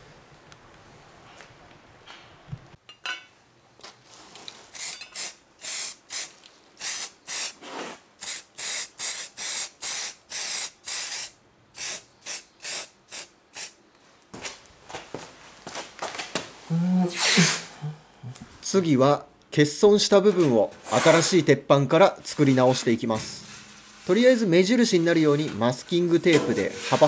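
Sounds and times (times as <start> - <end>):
aerosol spray can hissing bursts: 4.8 - 7.6, 8.2 - 13.8.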